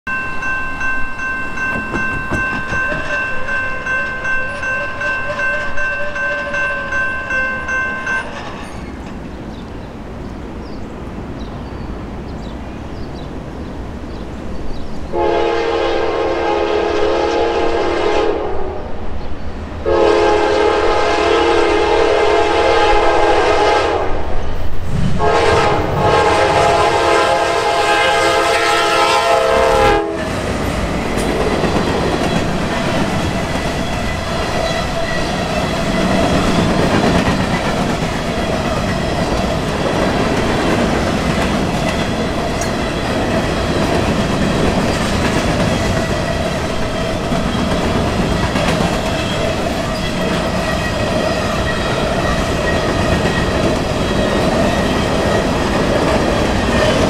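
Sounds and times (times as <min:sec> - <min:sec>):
crossing warning bell ringing: 0:00.1 - 0:09.1, 0:25.4 - 0:57.0
train rumble: 0:00.1 - 0:57.0
locomotive horn blasts: 0:15.1 - 0:18.9, 0:19.8 - 0:24.2, 0:25.2 - 0:30.4.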